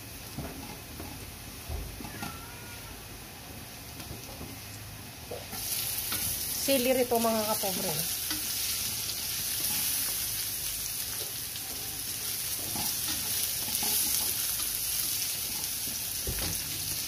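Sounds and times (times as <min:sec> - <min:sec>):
vegetables sizzling in a wok: 0:00.0 - 0:17.0
spatula scraping pan: 0:12.3 - 0:16.0.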